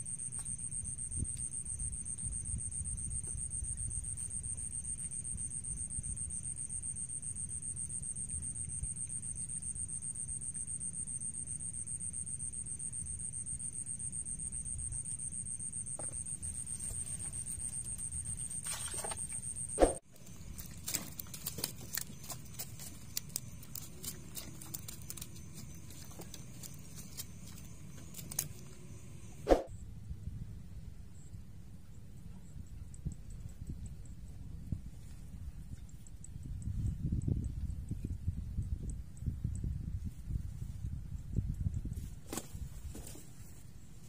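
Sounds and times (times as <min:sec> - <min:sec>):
night insects trilling: 0:00.0 - 0:29.5.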